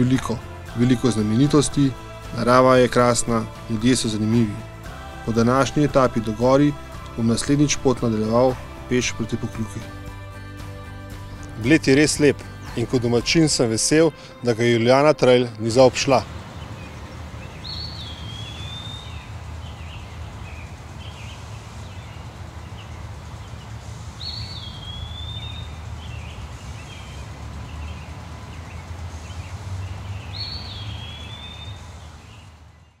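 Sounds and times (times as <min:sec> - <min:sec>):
low outdoor rumble: 0:00.0 - 0:32.9
soft bird chirps: 0:16.3 - 0:33.0
bird calling whistle: 0:17.6 - 0:19.3, 0:24.2 - 0:25.8.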